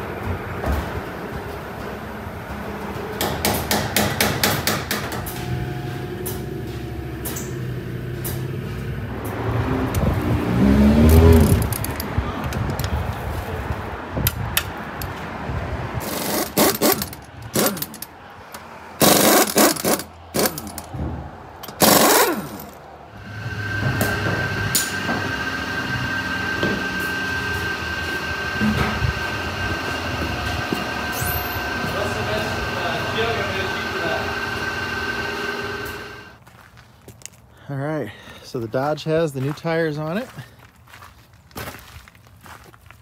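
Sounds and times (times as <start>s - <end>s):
machinery whine: 4.9s - 12.0s, 21.6s - 36.4s
steady high tone: 5.1s - 8.9s, 23.2s - 36.3s
impact wrench rattling: 16.0s - 18.2s, 19.0s - 21.0s, 21.6s - 22.8s.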